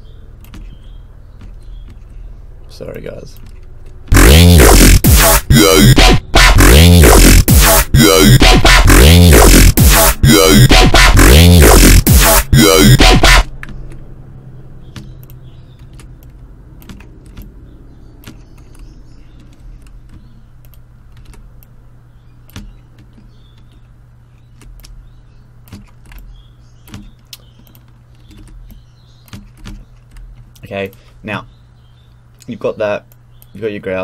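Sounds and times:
mouse and keyboard clicks: 0.4s - 0.8s, 3.3s - 4.0s, 15.0s - 17.5s, 18.2s - 21.7s, 22.5s - 25.0s, 25.6s - 31.0s.

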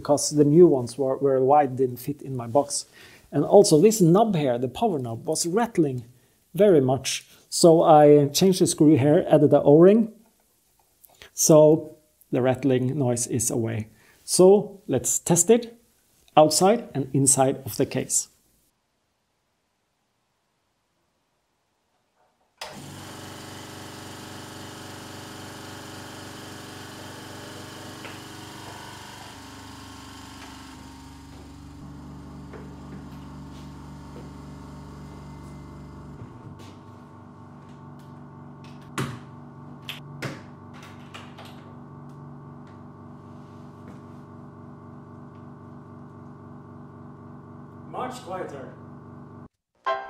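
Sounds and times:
air compressor running: 22.6s - 49.5s.

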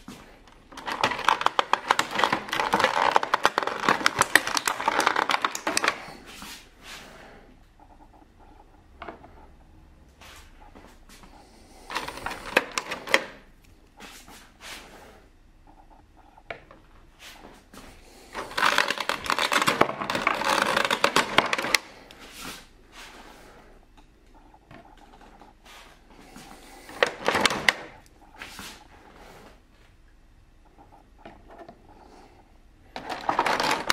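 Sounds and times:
plastic blister tray crinkling: 0.1s - 6.4s, 11.8s - 13.5s, 17.8s - 22.7s, 26.2s - 29.3s, 32.9s - 33.9s.

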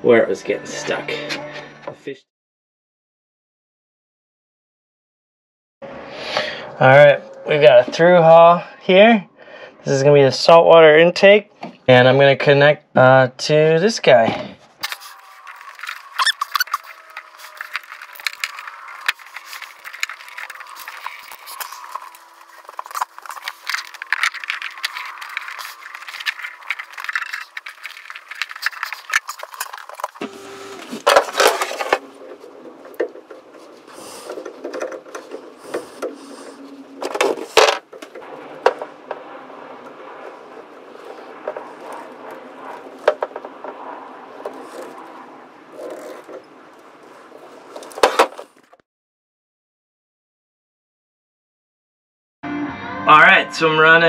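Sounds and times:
hose and fittings clicking and scraping: 14.8s - 30.2s, 31.0s - 38.9s, 40.2s - 43.8s, 44.4s - 48.8s.

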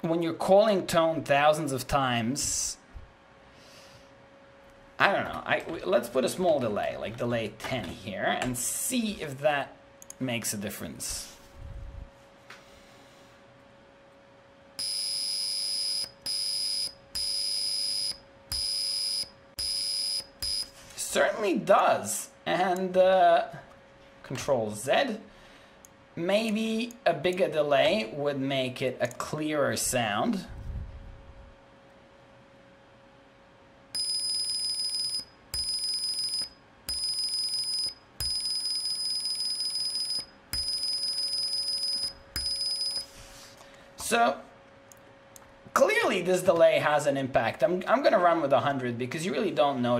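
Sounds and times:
high-pitched buzzer beeps: 14.8s - 20.7s, 34.0s - 43.1s.

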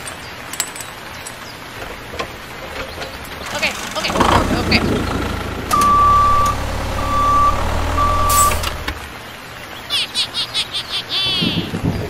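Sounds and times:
vehicle engine running: 2.6s - 9.0s
electronic reversing beeps: 5.7s - 8.9s
high chirpy squeaks: 5.7s - 8.9s.

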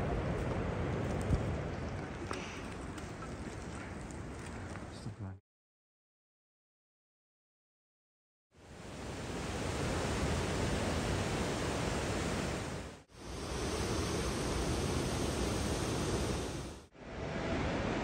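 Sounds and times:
mountain river rushing over boulders: 8.8s - 16.9s.

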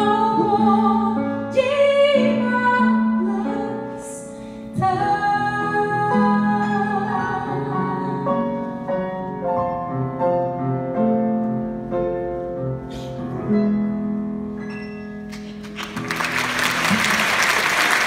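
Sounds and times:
grand piano playing: 0.0s - 18.0s
audience applauding: 15.3s - 18.0s.

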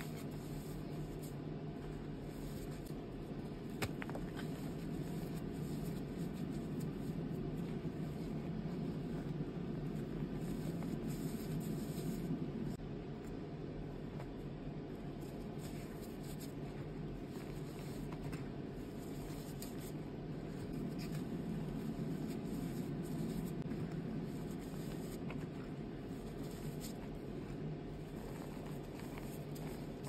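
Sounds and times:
powder rustling: 15.1s - 30.0s.

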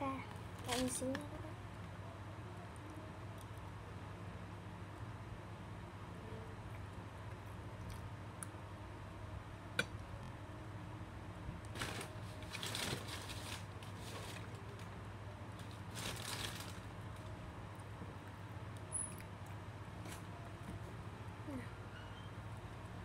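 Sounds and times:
steady low hum: 0.0s - 23.0s
paper crinkling and rustling: 0.6s - 1.2s, 11.7s - 17.3s.

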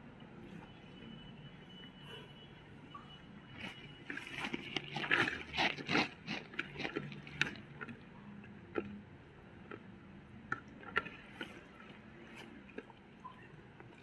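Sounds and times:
fingers squishing wet rice: 3.6s - 9.0s.

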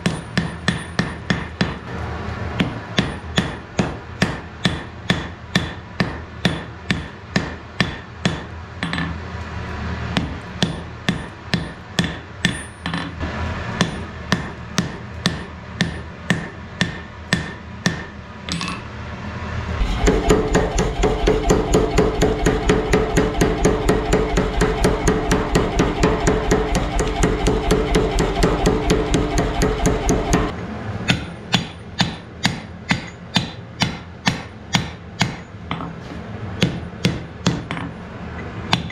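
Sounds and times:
hammer striking iron on anvil: 0.0s - 1.9s, 2.6s - 9.2s, 10.2s - 13.2s, 13.8s - 18.8s, 19.8s - 35.9s, 36.6s - 38.0s, 38.7s - 38.9s
steady hum: 13.2s - 33.1s.

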